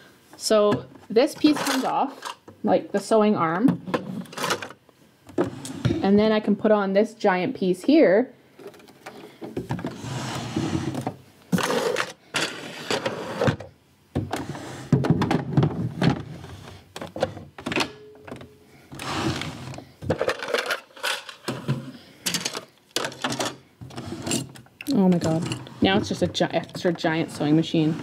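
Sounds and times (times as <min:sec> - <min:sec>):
plastic parts clunking: 0:00.6 - 0:02.6, 0:03.6 - 0:06.1, 0:16.9 - 0:27.4.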